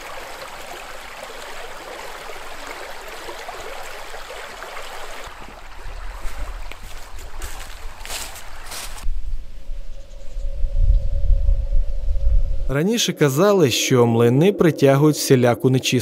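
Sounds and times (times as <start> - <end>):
river water rushing through branches: 0.0 - 9.0
low rumble: 9.0 - 12.9.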